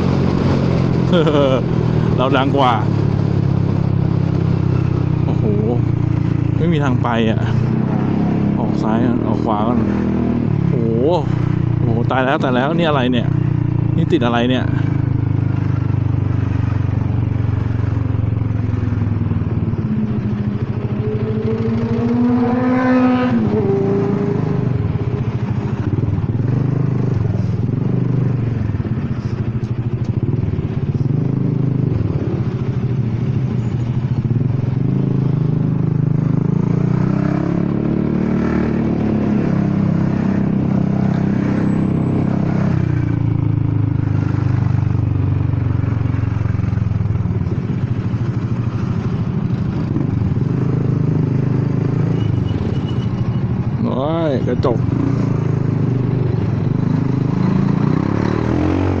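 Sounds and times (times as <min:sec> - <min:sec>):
scooter engine accelerating: 0:18.0 - 0:29.0.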